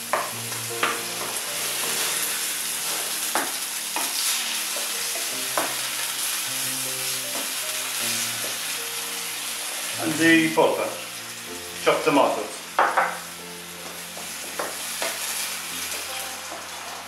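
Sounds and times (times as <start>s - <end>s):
vegetables sizzling in a pan: 0.0s - 17.0s
spatula knocking on pan: 5.1s - 5.8s, 12.8s - 13.2s, 13.9s - 15.2s.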